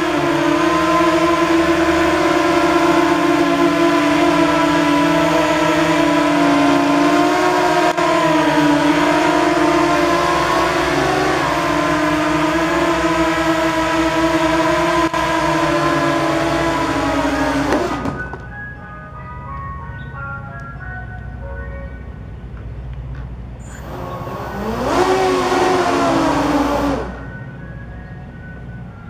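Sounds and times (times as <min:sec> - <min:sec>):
toy aircraft motors hum-whine: 0:00.0 - 0:18.3, 0:23.6 - 0:27.9.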